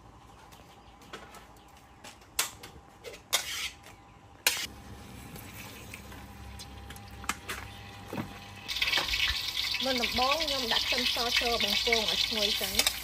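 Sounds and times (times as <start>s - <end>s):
metal wok and spatula clanking: 10.8s - 13.0s.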